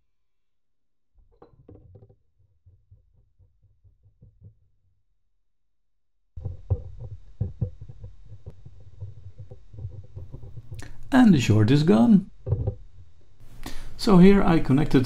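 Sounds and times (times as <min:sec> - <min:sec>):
faint knocks and clicks of probes: 0:06.4 - 0:11.1.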